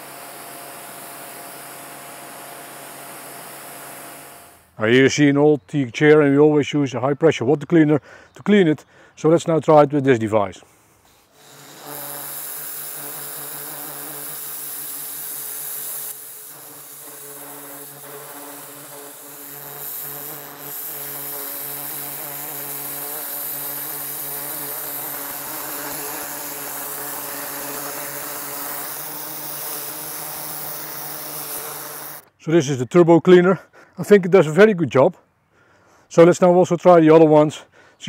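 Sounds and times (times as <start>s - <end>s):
pressure washer motor humming: 0.0s - 4.8s, 11.3s - 32.3s
water jet hissing on wood: 11.0s - 32.3s.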